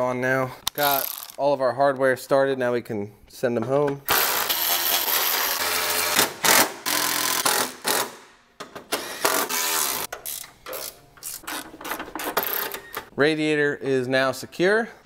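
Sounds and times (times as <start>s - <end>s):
cordless power tool driving bolts: 8.9s - 12.9s.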